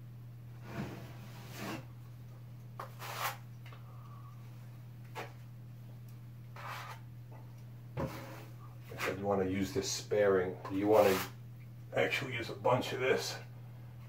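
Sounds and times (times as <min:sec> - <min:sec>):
steady low hum: 0:00.0 - 0:14.0
drywall knife scraping compound: 0:00.8 - 0:01.9, 0:02.8 - 0:03.4, 0:06.6 - 0:07.0, 0:08.0 - 0:09.2, 0:10.6 - 0:11.4.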